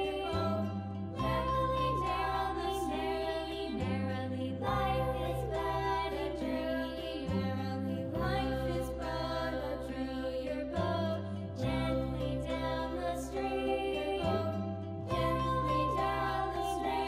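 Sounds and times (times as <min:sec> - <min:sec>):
slow sustained chords: 0:00.0 - 0:17.0.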